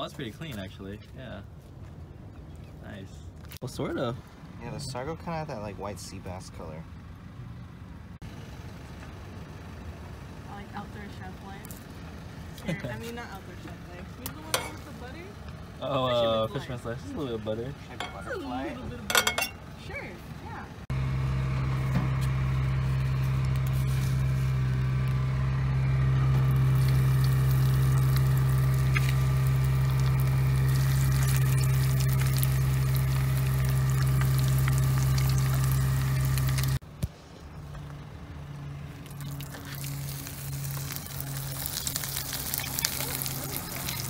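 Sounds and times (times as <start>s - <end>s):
loud steady low drone: 20.9s - 36.8s
oil sizzling in a pan: 26.4s - 36.8s, 39.4s - 44.0s.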